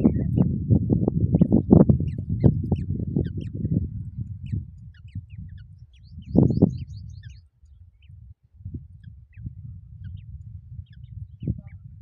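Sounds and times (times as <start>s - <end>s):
nestlings begging chirps: 1.4s - 3.7s, 4.3s - 8.1s.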